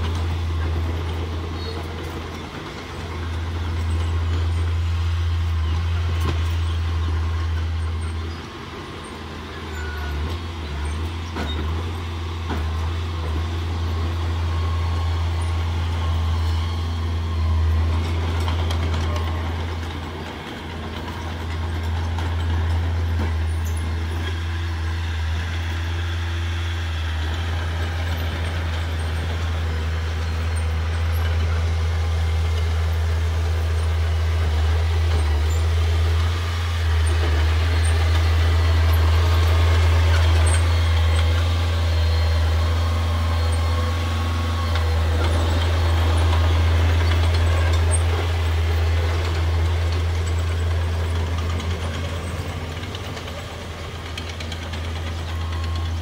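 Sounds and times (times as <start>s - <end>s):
bulldozer diesel engine drone: 0.0s - 56.0s.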